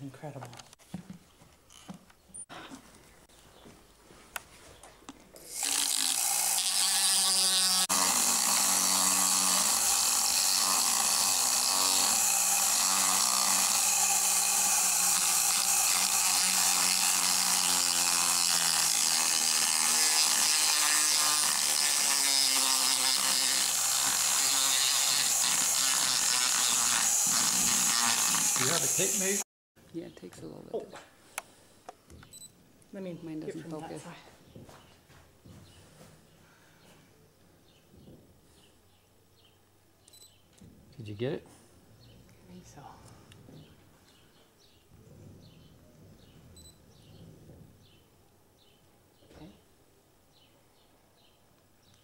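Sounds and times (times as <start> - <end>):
power tool grinding disc: 5.4 - 29.5.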